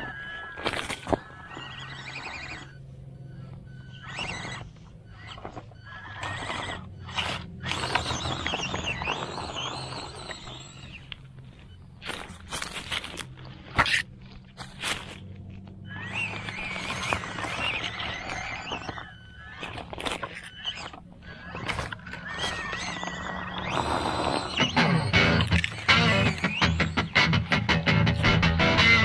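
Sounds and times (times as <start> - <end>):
leaves and twigs crackling: 0.0 - 2.7, 7.8 - 24.0
electric motor whining: 0.0 - 14.1, 14.8 - 29.0
steady low hum: 0.0 - 29.0.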